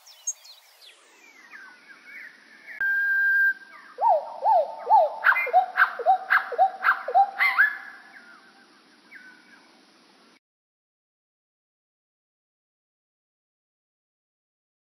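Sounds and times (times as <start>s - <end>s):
slowed birdsong: 0.0s - 10.2s.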